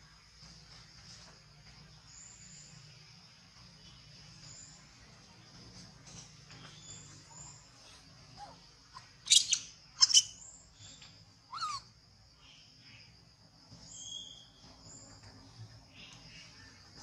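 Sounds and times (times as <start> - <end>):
monkey squealing: 11.5 - 11.8
monkeys screeching: 11.5 - 11.8.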